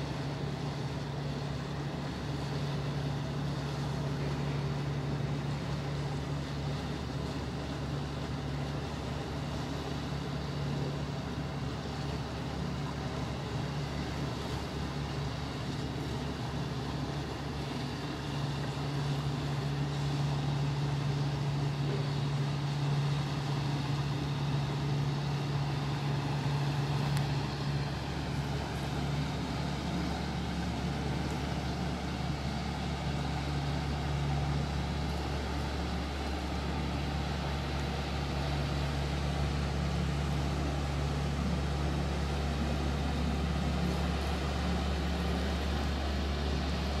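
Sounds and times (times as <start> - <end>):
even wash of noise: 0.0 - 47.0
low engine drone: 0.0 - 47.0.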